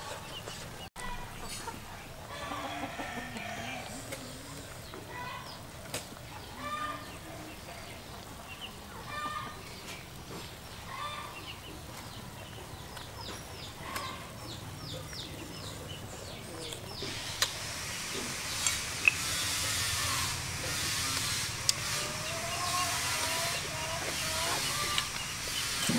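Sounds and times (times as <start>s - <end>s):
chickens clucking: 0.0s - 25.9s
hiss from steaming wok: 17.0s - 25.9s.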